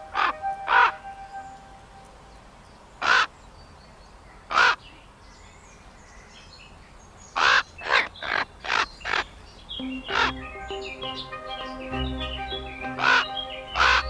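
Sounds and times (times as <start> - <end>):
crow cawing: 3.0 - 3.3, 4.5 - 4.8.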